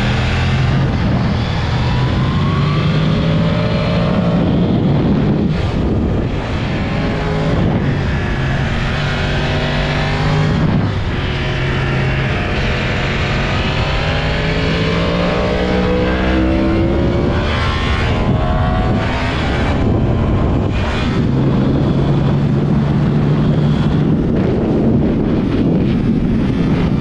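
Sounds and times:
heavy wind rush: 0.0s - 27.0s
motorcycle engine accelerating: 0.0s - 27.0s.

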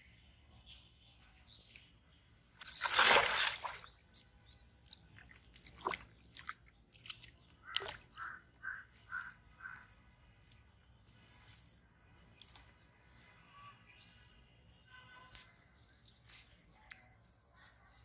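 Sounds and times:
fish splashing in water: 2.6s - 3.9s, 5.0s - 8.4s
fish thrashing and flapping: 2.6s - 3.9s
bird calling: 7.5s - 10.0s.

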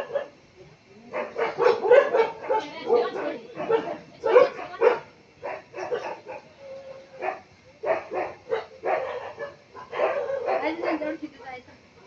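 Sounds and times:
animal whine: 5.7s - 7.4s.

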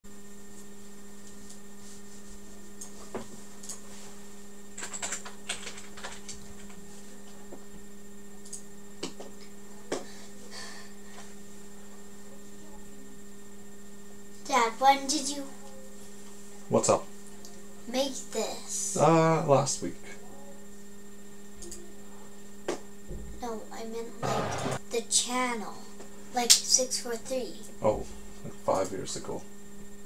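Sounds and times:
steady low hum: 6.4s - 26.4s.

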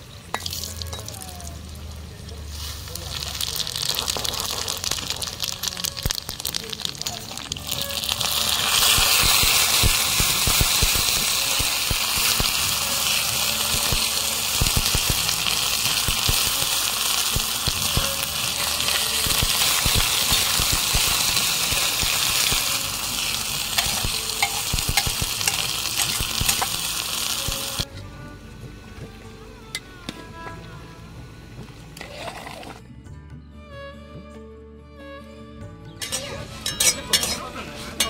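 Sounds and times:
food sizzling in hot oil: 0.0s - 27.9s
stirring clicks and scrapes: 2.7s - 12.5s.

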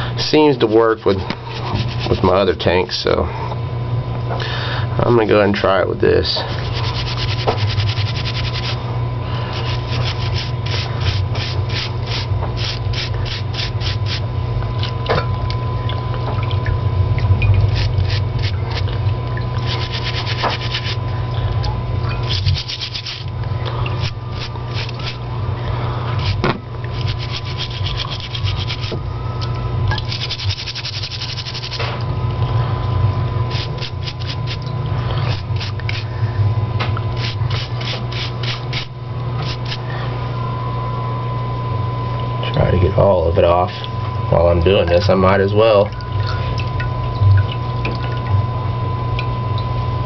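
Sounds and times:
scrub brush scrubbing wet rock: 0.4s - 2.7s, 6.5s - 8.8s, 9.5s - 14.2s, 17.7s - 18.9s, 19.6s - 21.0s, 22.3s - 23.3s, 24.0s - 25.2s, 26.2s - 29.0s, 30.0s - 32.0s, 33.5s - 34.7s, 35.3s - 36.1s, 37.2s - 39.8s.

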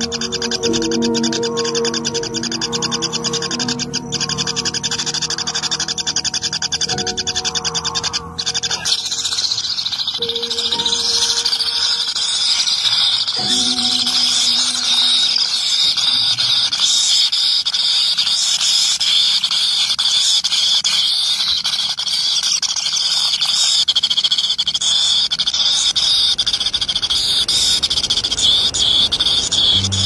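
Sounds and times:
faint low steady notes: 0.0s - 15.9s
high-pitched insect chirring chorus: 0.0s - 16.2s.

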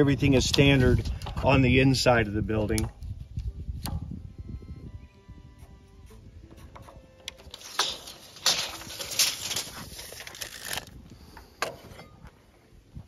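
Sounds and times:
scraping and rustling: 6.8s - 11.0s.

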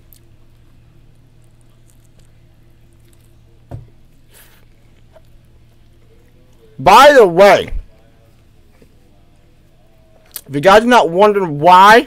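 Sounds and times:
steady low hum: 0.0s - 12.0s
soft thump: 3.7s - 4.0s.

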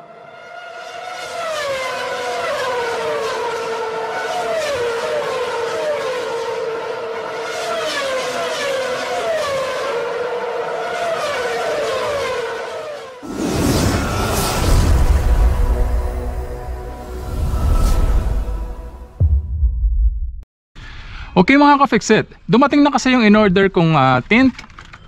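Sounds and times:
motorcycle engine revving: 0.5s - 19.4s.

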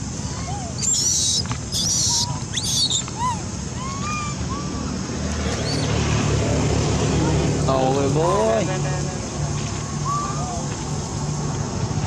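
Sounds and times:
monkeys screaming: 0.2s - 6.4s, 10.0s - 10.7s
monkey squeaks: 0.4s - 4.7s, 5.5s - 5.9s.

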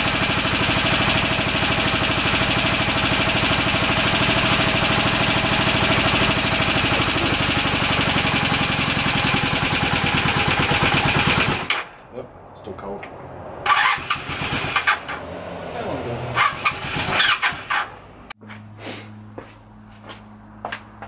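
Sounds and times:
motorcycle engine running poorly: 0.0s - 11.9s, 13.6s - 15.2s, 16.3s - 18.0s.

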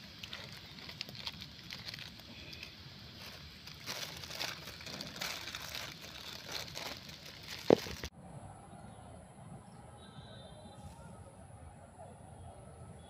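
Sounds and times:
wood fire crackling: 0.0s - 8.1s.

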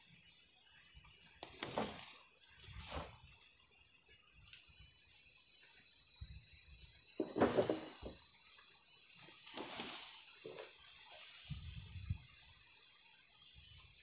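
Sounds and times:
dull thumps of boards: 7.2s - 8.2s.

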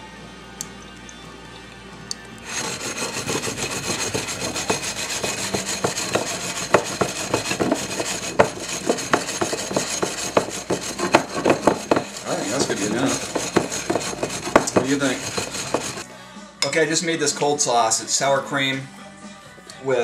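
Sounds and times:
faint music: 0.0s - 20.0s
close rubbing and scraping: 2.5s - 16.1s.

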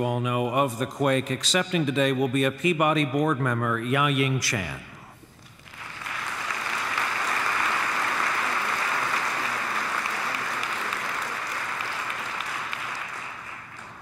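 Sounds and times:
audience applauding: 5.4s - 14.0s.

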